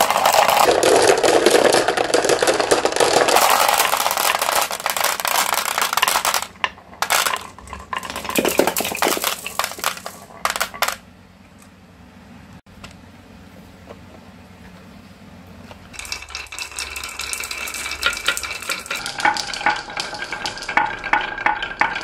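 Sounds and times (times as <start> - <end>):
glass marbles clattering down a run: 0.0 - 11.0, 15.9 - 22.0.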